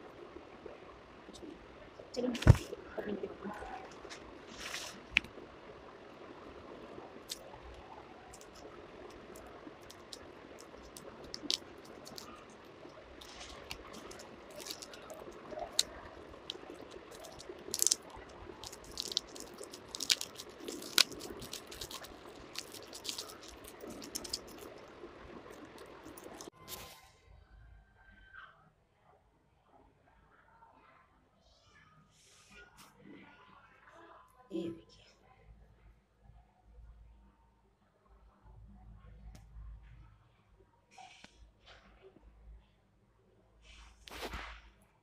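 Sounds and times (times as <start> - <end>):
chalk block crunching and snapping: 9.4 - 12.5, 13.2 - 24.8.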